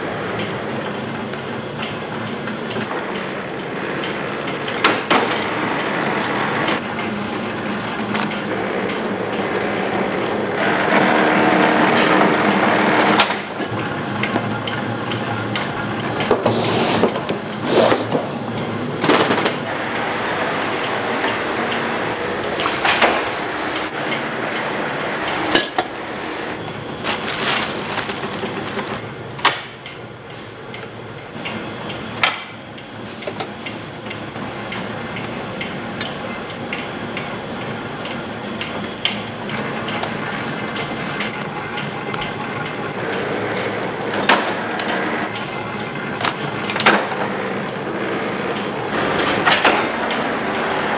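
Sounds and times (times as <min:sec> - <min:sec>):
steady background noise: 0:00.0 - 0:50.9.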